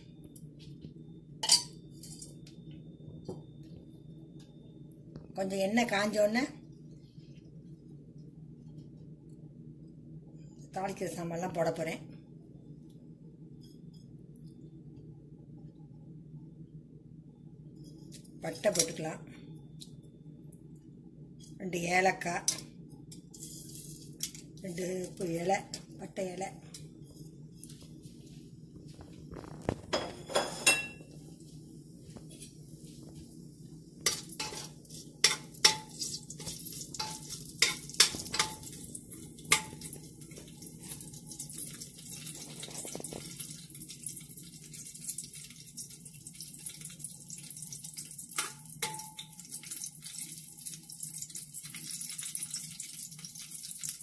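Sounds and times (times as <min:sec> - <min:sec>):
spices sizzling in oil: 0:23.3 - 0:25.9, 0:31.4 - 0:54.0.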